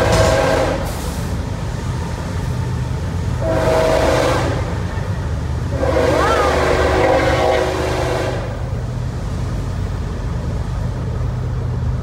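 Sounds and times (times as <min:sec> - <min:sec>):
train horn: 0:00.0 - 0:01.0, 0:03.4 - 0:04.8, 0:05.7 - 0:08.6
road and engine rumble: 0:00.0 - 0:12.0.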